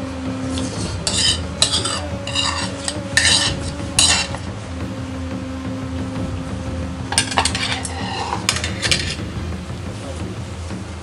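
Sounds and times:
cutlery scraping on a plate: 1.1 - 4.3.

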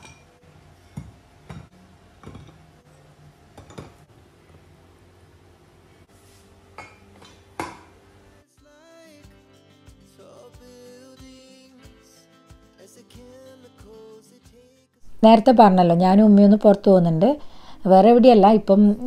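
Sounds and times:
dishes clinking in a rack: 0.0 - 2.6, 3.5 - 4.0, 6.8 - 7.9
background music: 7.4 - 19.0.

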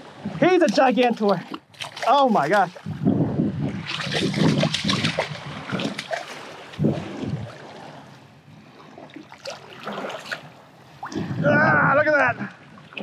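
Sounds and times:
feet wading through water: 0.0 - 11.4
fish thrashing and splashing: 0.8 - 3.0, 3.7 - 7.8.

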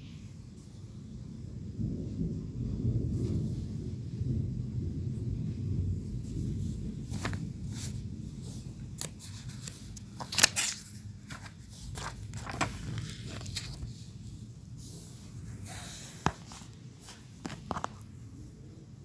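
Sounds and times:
thunder rumble: 1.3 - 8.9.

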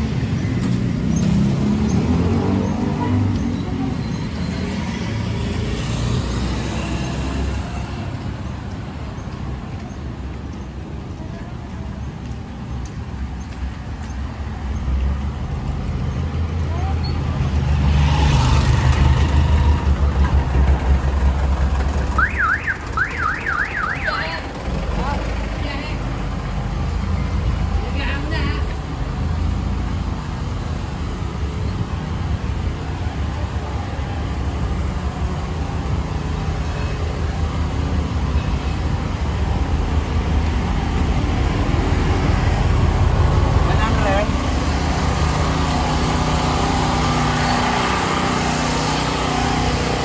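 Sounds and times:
diesel engine idling: 18.7 - 31.5.

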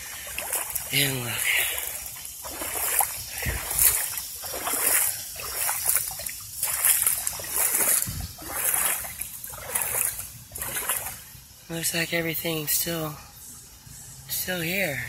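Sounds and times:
footsteps splashing through water: 0.0 - 11.5.

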